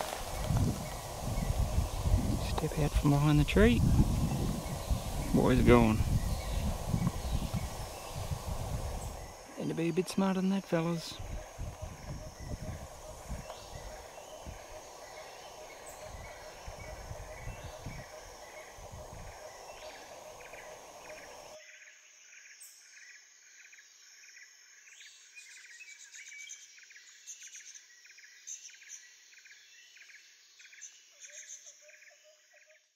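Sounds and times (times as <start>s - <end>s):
wind buffeting microphone: 0.0s - 9.5s, 10.9s - 21.4s
insects droning: 0.0s - 25.1s.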